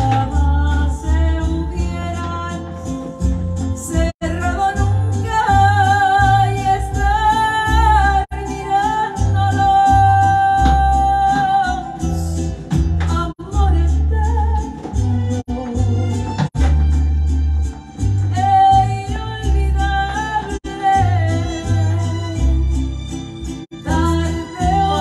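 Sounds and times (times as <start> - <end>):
woman singing with vibrato: 0.0 - 16.4, 18.2 - 22.8, 23.8 - 25.0
backing music with pulsing bass: 0.0 - 19.8.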